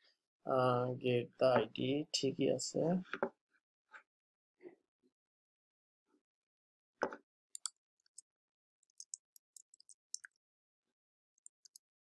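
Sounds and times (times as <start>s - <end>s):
computer keys clicking: 7.6s - 8.2s, 8.9s - 10.4s
mouse clicking: 7.6s - 8.2s, 8.9s - 10.4s.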